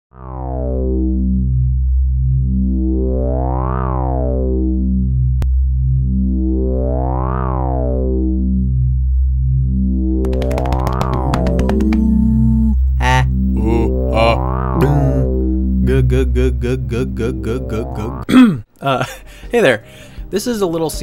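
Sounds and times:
synthesizer music: 10.2 - 18.3.

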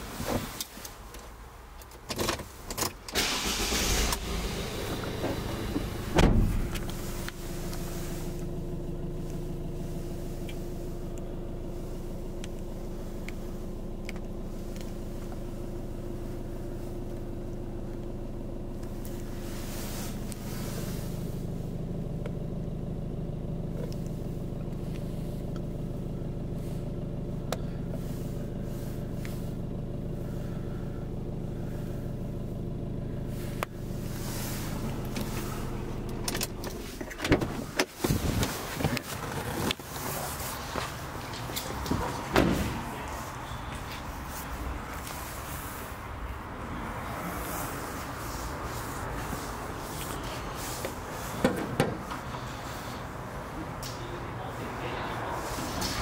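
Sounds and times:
van engine starting and idling: 0.0 - 56.0
sharp loud thud: 6.0 - 6.8.

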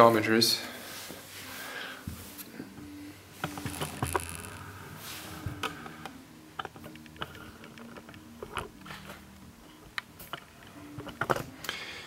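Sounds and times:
low steady hum: 0.6 - 12.0
faint handling clicks and knocks: 5.4 - 11.6.

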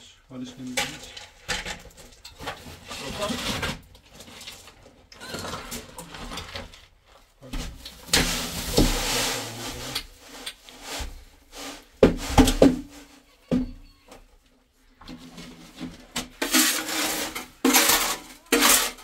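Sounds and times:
wet cement pouring from wheelbarrow: 7.8 - 10.2, 16.4 - 19.0
wheelbarrow knocking: 12.0 - 13.8.

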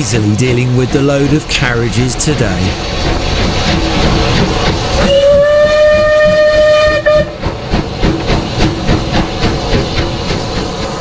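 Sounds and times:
rhythmic locomotive chuffing: 0.0 - 11.0
steam locomotive hissing: 0.0 - 11.0
steam whistle blast: 5.0 - 7.4.

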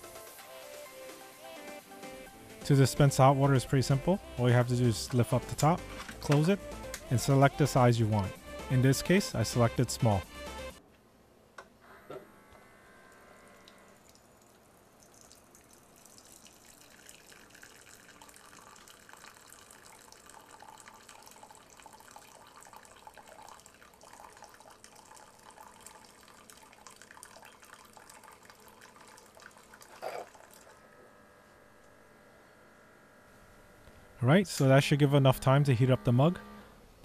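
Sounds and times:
hot water pouring into a mug: 13.9 - 30.9.

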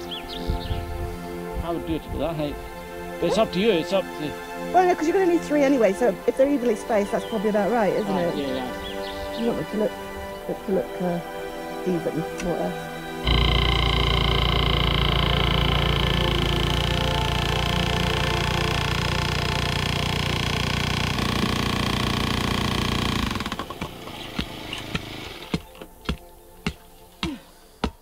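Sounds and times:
engine running: 13.2 - 25.7.

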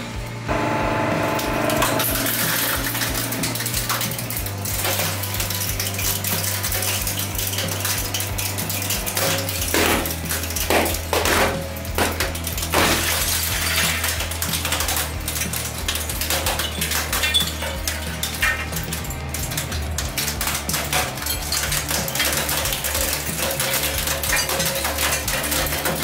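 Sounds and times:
hydraulic press crushing plastic lighters: 0.5 - 26.0.

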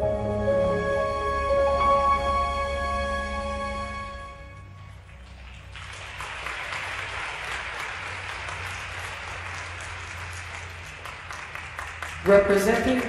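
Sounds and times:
spectators applauding: 4.7 - 13.0.

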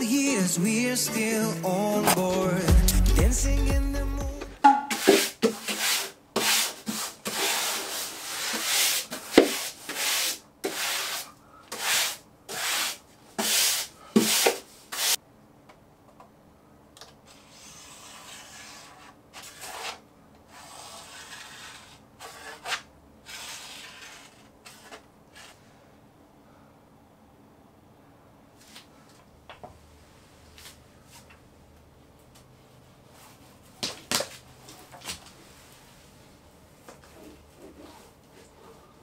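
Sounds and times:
brush scraping over wallpaper: 4.9 - 15.2, 17.3 - 25.8, 37.0 - 39.0.

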